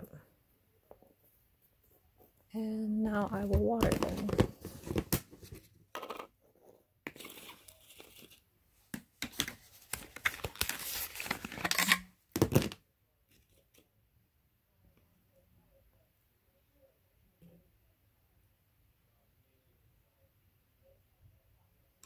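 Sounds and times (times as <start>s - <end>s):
plastic cups crinkling and clicking: 3.1s - 6.3s, 7.1s - 8.4s, 9.0s - 12.8s.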